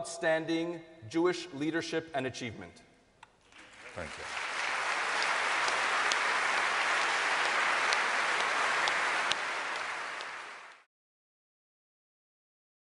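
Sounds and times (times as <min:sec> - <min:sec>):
audience applauding: 0:03.5 - 0:10.9.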